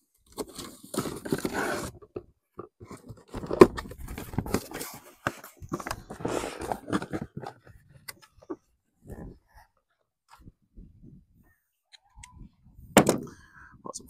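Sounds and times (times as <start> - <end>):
cardboard packaging rustling: 0.2 - 2.2, 2.8 - 7.8.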